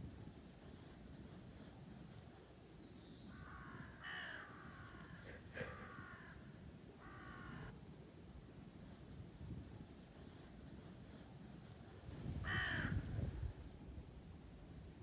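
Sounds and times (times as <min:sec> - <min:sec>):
crow cawing: 0:03.3 - 0:07.7, 0:12.4 - 0:13.0.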